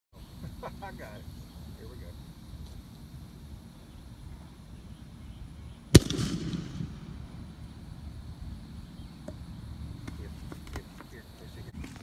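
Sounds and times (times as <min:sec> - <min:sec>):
gunshot bang with echo: 0:06.0 - 0:07.2.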